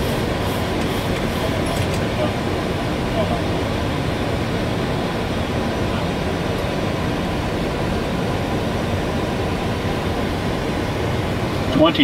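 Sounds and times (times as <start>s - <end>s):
air rushing over aircraft nose: 0.0s - 3.0s
jet engine noise: 0.0s - 12.0s.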